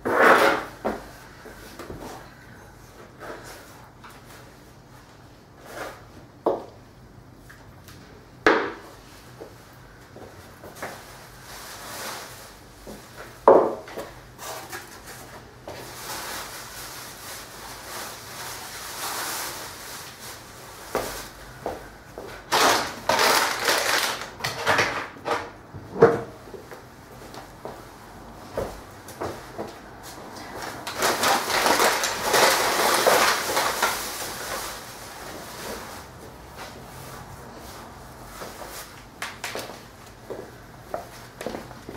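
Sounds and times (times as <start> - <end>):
dustpan scraping on wooden floor: 0.0 - 1.0
plastic bag rustling: 10.8 - 13.4, 14.4 - 21.8, 22.4 - 25.3, 29.3 - 40.0.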